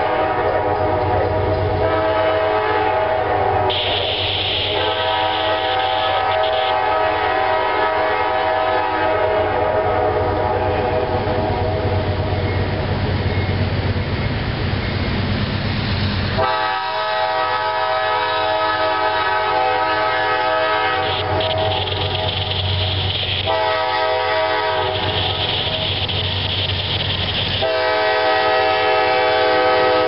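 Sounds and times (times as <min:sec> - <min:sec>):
locomotive horn chord: 0:00.0 - 0:12.0, 0:16.4 - 0:22.4, 0:23.4 - 0:25.8, 0:27.6 - 0:30.0
train rumbling: 0:00.0 - 0:30.0.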